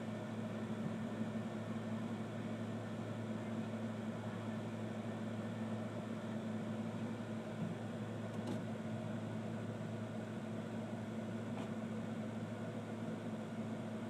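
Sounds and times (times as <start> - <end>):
steady low hum over hiss: 0.0 - 14.0.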